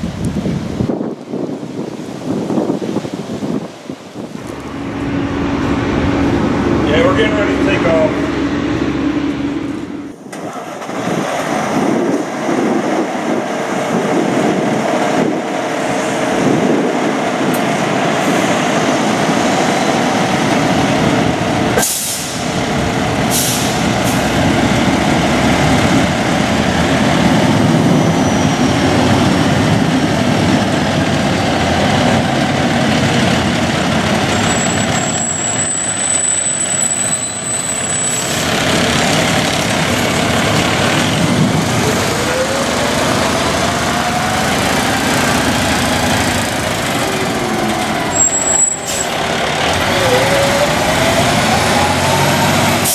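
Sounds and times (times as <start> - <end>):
diesel truck engine running: 4.3 - 52.9
air brake hisses: 21.8 - 22.4, 23.3 - 23.8.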